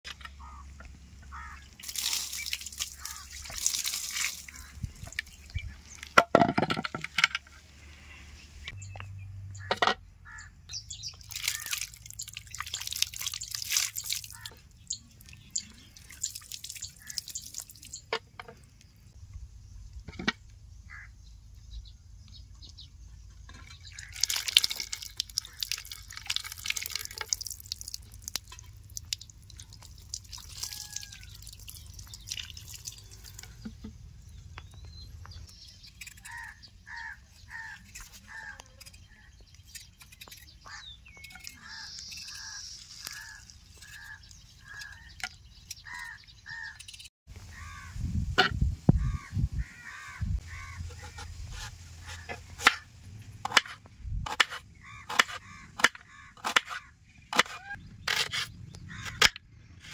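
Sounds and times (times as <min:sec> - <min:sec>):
water splashing and dripping: 0:01.6 - 0:06.2, 0:11.1 - 0:18.3, 0:23.8 - 0:33.9.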